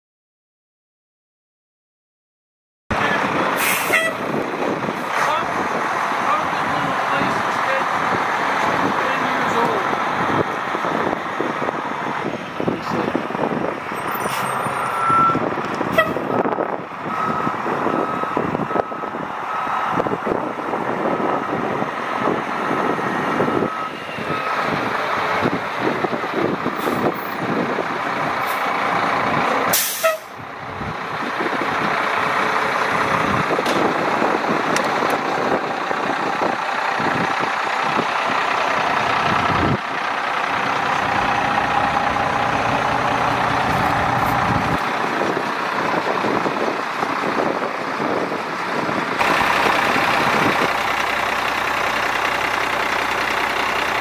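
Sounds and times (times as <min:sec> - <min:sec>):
repeated electronic beep: 0:14.1 - 0:15.4
fire truck diesel engine idling: 0:16.7 - 0:54.0.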